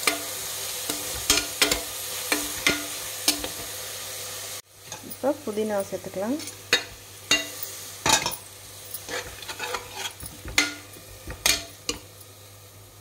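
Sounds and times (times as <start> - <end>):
food sizzling: 0.0 - 13.0
spoon scraping and clinking pot: 6.4 - 12.1.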